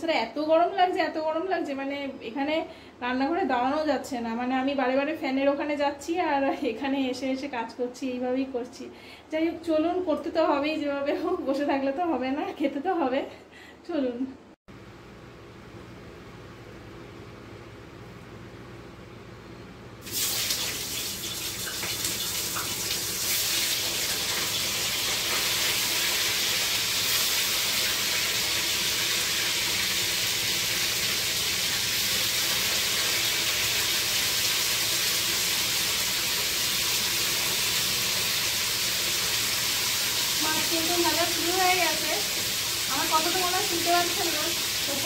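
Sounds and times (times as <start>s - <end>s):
kitchen exhaust fan hum: 0.0s - 45.0s
fish sizzling in hot oil: 20.0s - 45.0s.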